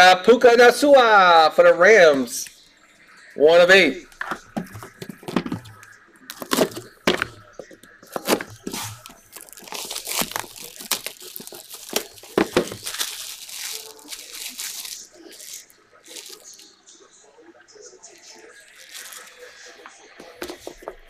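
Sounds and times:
plastic wrap crinkling and tearing: 4.4s - 16.7s, 18.5s - 20.4s.

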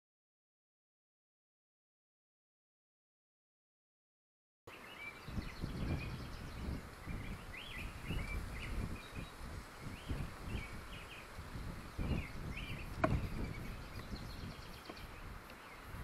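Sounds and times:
birds chirping: 4.7s - 16.0s.

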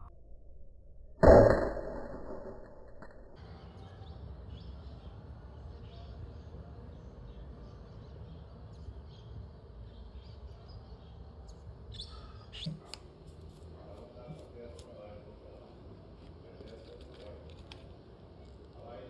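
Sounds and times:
bird chirps: 3.4s - 12.8s.

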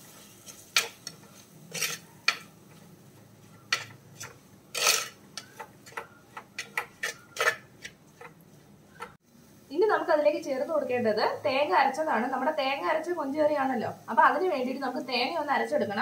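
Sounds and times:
metal spoon scraping clay pot: 0.4s - 2.8s, 3.5s - 9.2s.

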